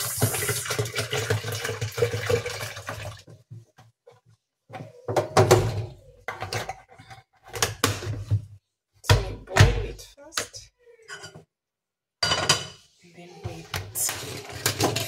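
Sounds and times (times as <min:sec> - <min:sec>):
water pouring into metal pot: 0:00.0 - 0:03.3
cookware knocking and clunking: 0:05.1 - 0:08.4, 0:11.1 - 0:11.5, 0:12.2 - 0:12.9.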